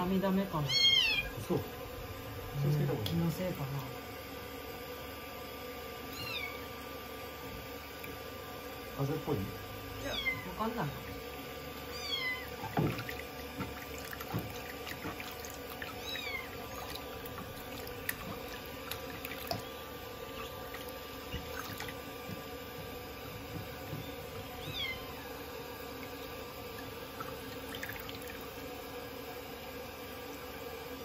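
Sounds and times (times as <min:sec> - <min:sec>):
kitten meowing: 0:00.6 - 0:01.4, 0:06.1 - 0:06.7, 0:10.0 - 0:10.6, 0:11.9 - 0:12.7, 0:16.0 - 0:16.6, 0:24.6 - 0:25.3
water running into basin: 0:06.0 - 0:31.0.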